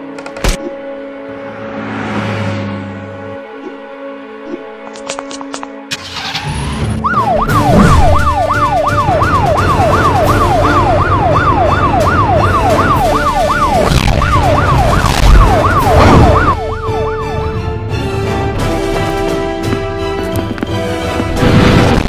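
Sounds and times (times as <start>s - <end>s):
police siren yelp: 6.8s - 17.8s.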